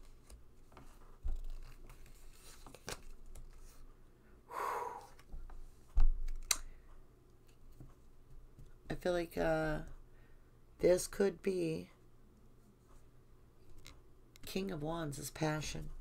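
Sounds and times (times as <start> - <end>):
cards scraping and clicking: 0.0 - 3.8.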